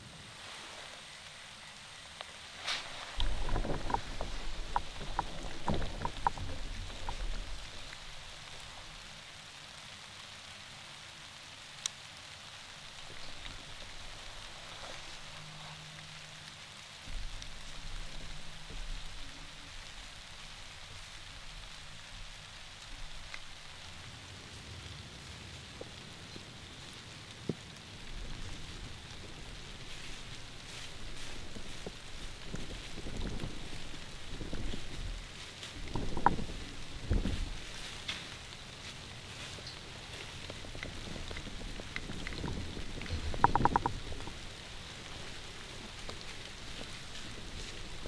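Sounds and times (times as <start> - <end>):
light rain pattering: 0.0 - 48.0
low rumble: 2.8 - 9.3, 12.8 - 26.8.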